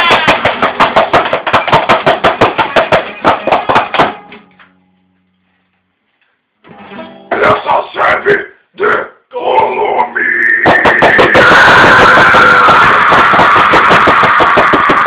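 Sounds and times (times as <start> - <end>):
distorted noise grind music: 10.2 - 15.0.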